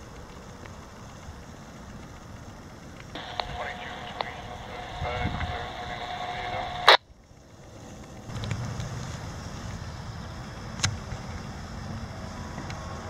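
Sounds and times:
steady hum: 0:03.1 - 0:10.8.

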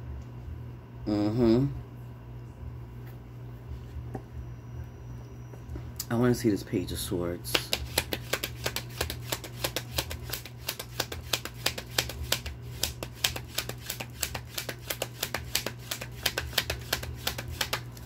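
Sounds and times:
cards being shuffled: 0:07.5 - 0:18.0.

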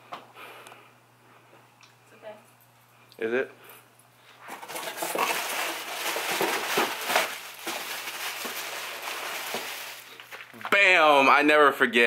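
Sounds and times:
rustling handling noise: 0:04.3 - 0:10.8.

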